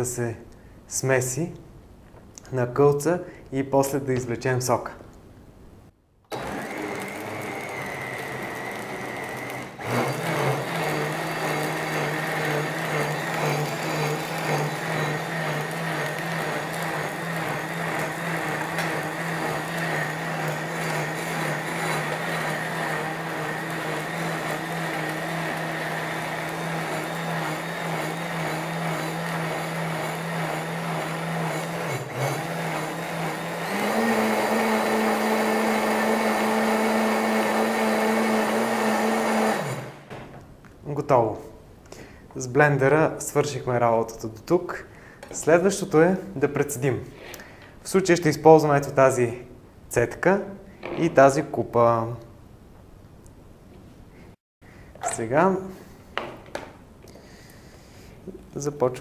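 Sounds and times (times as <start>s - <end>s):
blender running: 6.3s - 40.1s.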